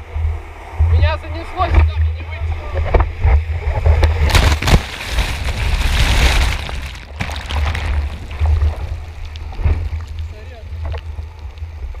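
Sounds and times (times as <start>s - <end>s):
foam crackles and splashes: 4.0s - 12.0s
surf whitewater rushing: 4.2s - 11.9s.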